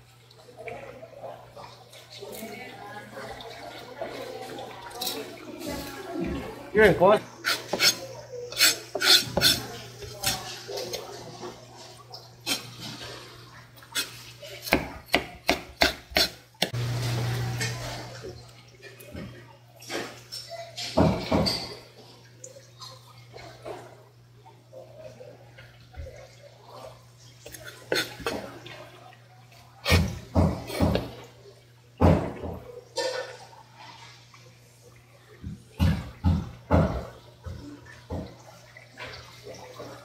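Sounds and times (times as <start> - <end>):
knife and fish on cutting board: 7.5 - 10.5, 14.0 - 16.4.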